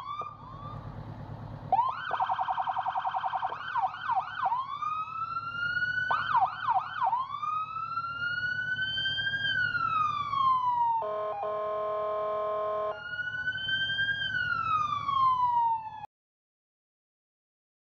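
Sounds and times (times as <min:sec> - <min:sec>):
electronic siren yelp and wail: 0:00.0 - 0:00.8, 0:01.7 - 0:16.1
engine idling: 0:00.0 - 0:10.9
fire truck horn blast: 0:11.0 - 0:13.0.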